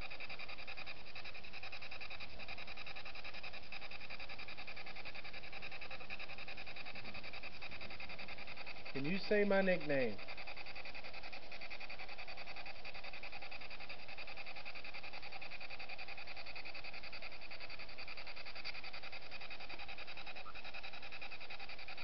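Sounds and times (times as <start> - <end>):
chopped radio static: 9.0 - 10.2.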